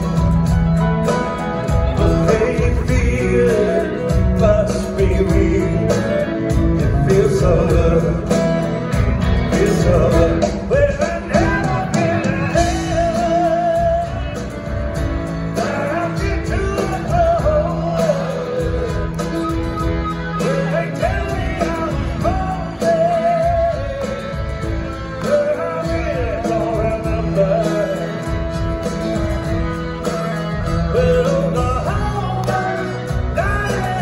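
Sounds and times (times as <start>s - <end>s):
rock band playing: 0.0s - 34.0s.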